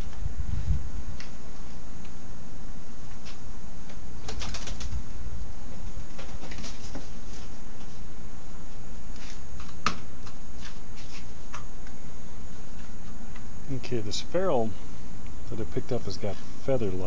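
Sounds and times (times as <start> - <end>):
pigeon flapping wings: 4.2 - 5.1, 5.9 - 7.4.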